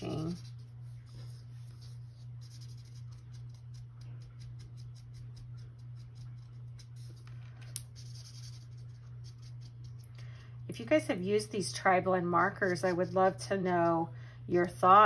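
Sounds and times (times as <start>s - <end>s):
marker scratching on paper: 0.0s - 7.3s, 8.0s - 10.0s
steady low hum: 0.0s - 15.0s.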